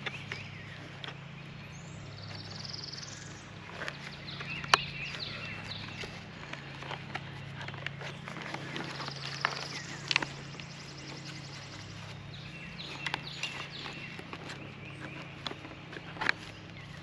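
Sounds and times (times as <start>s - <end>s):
birds chirping and calling: 0.0s - 17.0s
steady low hum: 0.0s - 17.0s.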